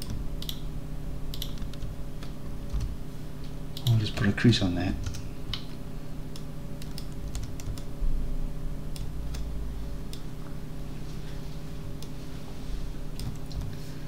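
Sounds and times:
low electrical hum: 0.0 - 14.0
keyboard keys clicking: 1.3 - 2.9, 5.0 - 7.9, 13.2 - 13.7.

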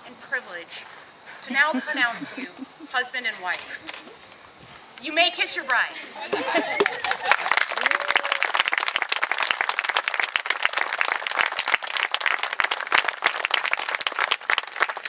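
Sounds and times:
crowd applauding: 6.3 - 15.0.

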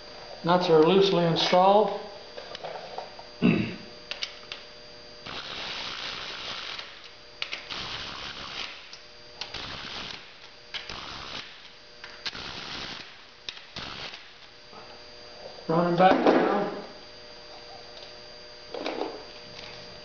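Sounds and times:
power ratchet running: 5.2 - 14.5
sharp ratchet clicks: 5.3 - 14.4.

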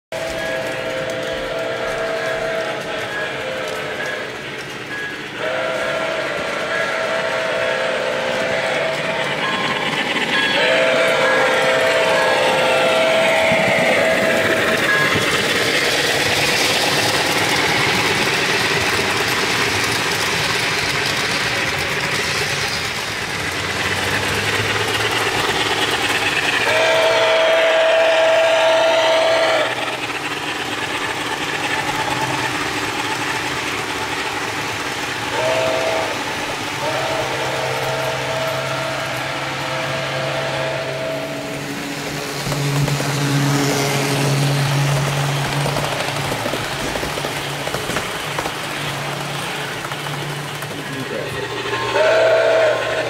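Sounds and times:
model train chime whistle: 0.1 - 15.3, 26.3 - 29.8, 35.3 - 41.6, 51.8 - 53.0
model train running sound: 0.1 - 53.0.

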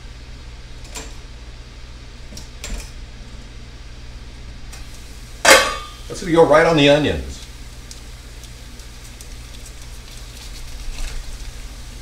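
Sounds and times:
low steady hum: 0.0 - 12.0
frying pan lid clattering: 5.4 - 6.0.

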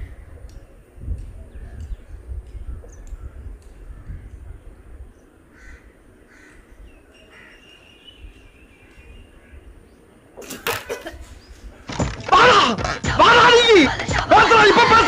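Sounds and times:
wind rumble on microphone: 0.0 - 7.1
faint bird calls: 0.0 - 11.8.

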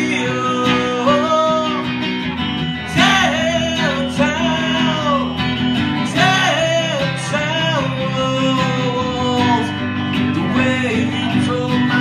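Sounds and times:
man singing: 0.0 - 2.1, 2.8 - 12.0
acoustic guitar strumming: 0.0 - 12.0.

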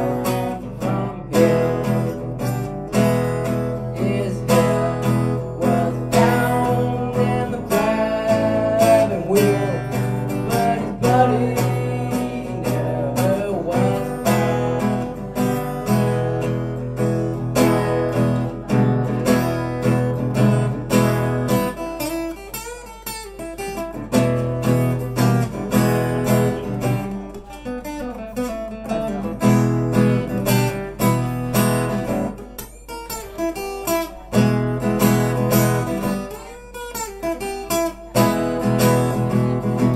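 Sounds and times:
acoustic guitar strummed chords: 0.0 - 39.9.

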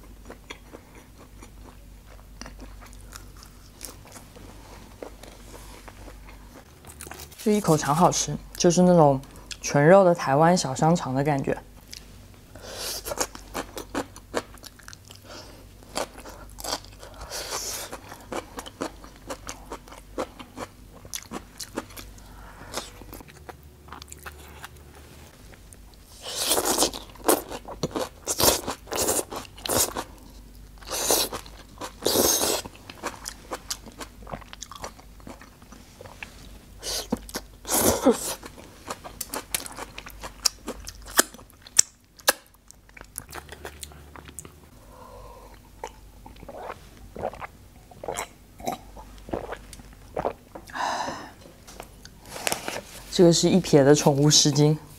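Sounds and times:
chewing and crunching food: 0.0 - 7.4, 13.0 - 44.7, 45.4 - 50.8.

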